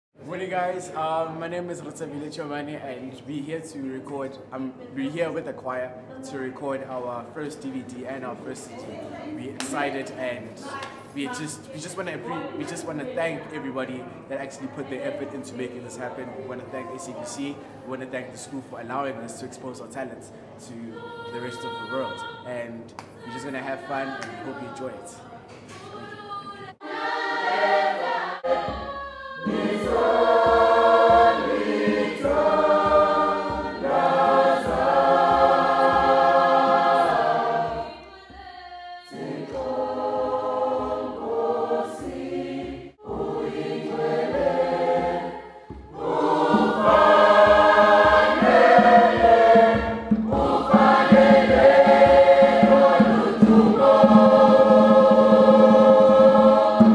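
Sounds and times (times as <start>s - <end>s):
choir singing in harmony: 20.7s - 56.9s
steady low beat: 29.5s - 38.0s, 39.2s - 56.9s.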